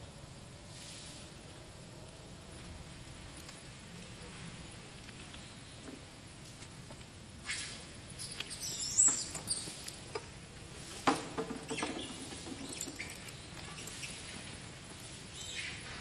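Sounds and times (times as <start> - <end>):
baby monkey squeaking and squealing: 8.2 - 9.8.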